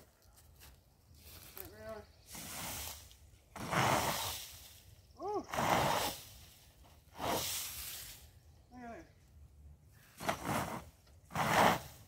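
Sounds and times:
rake scraping pine straw: 0:01.2 - 0:08.4, 0:10.0 - 0:12.0.

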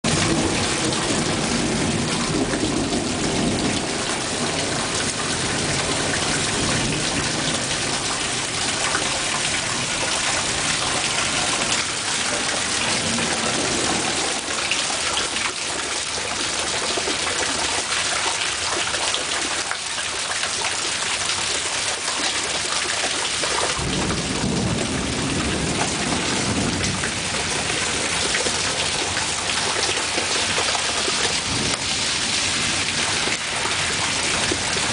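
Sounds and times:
heavy rain falling: 0:00.0 - 0:34.9
rolling thunder: 0:00.1 - 0:14.6, 0:23.7 - 0:34.9.

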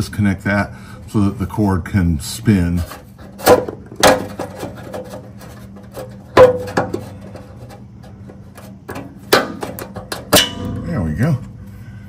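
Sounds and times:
faint steady hum: 0:00.0 - 0:12.0
light rubbing and ticking: 0:04.3 - 0:09.2.

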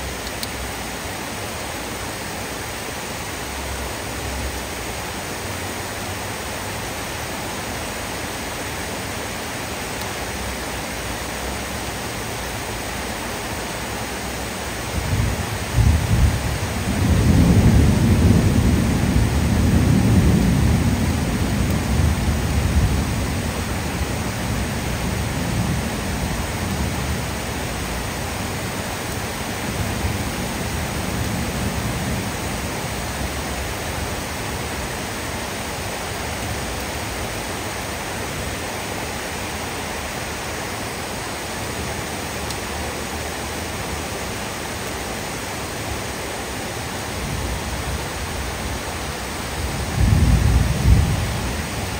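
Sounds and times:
heavy rain on roofs: 0:00.0 - 0:51.9
low rumble of thunder: 0:15.0 - 0:34.2, 0:49.4 - 0:51.9.

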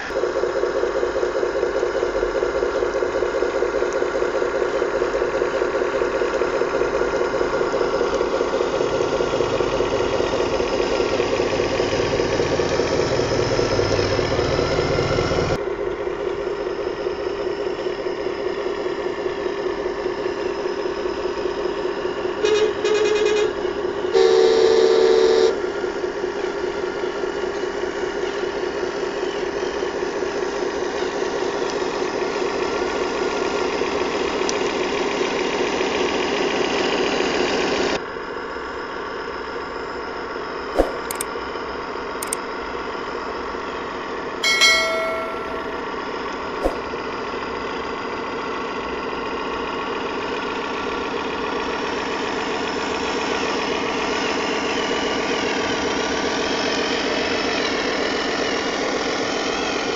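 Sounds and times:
simulated diesel truck engine idling: 0:00.1 - 0:24.1
truck horn toots: 0:22.4 - 0:23.6, 0:24.2 - 0:25.6.

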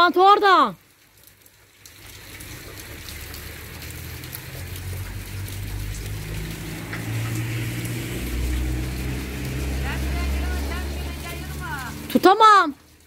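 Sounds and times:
steady rain falling: 0:00.0 - 0:13.0
minibus engine hum: 0:04.5 - 0:12.2.

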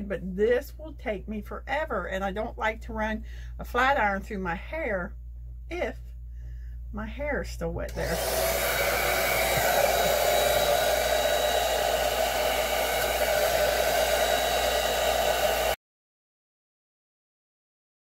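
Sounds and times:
hair dryer running: 0:07.9 - 0:15.8.

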